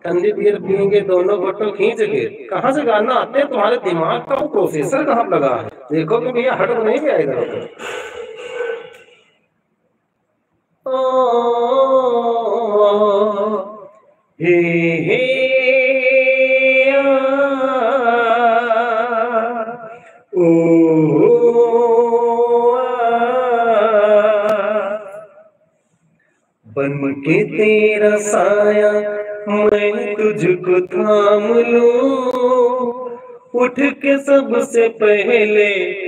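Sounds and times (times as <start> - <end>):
man singing wordless melody: 10.9 - 25.4, 26.7 - 36.0.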